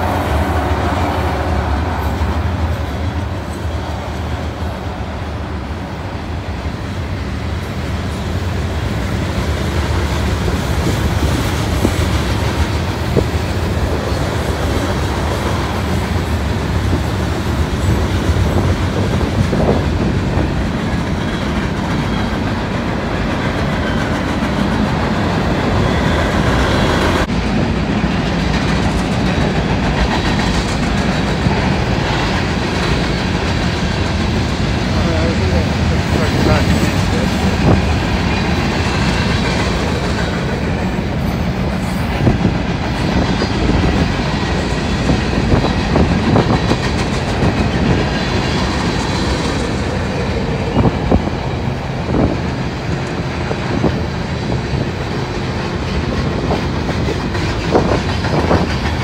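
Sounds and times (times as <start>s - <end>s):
freight train rolling past: 0.0s - 59.0s.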